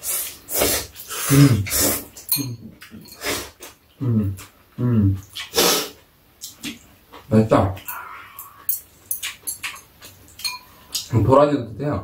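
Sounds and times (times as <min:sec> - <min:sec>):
person humming: 0:07.9 - 0:08.7.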